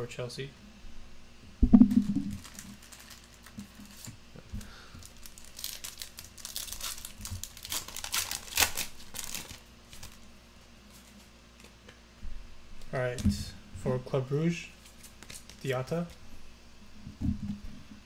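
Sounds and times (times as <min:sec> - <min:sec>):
foil wrapper tearing and crinkling: 0:02.0 - 0:04.1, 0:05.0 - 0:10.3, 0:15.0 - 0:15.8.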